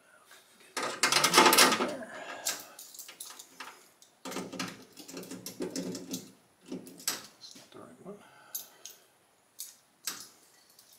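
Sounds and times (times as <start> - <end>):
metal tools clattering: 0.8 - 7.4.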